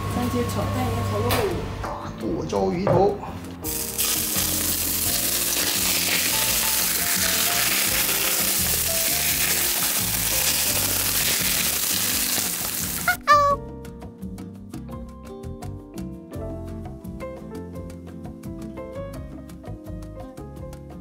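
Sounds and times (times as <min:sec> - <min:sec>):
hot oil sizzling: 0:03.6 - 0:13.3.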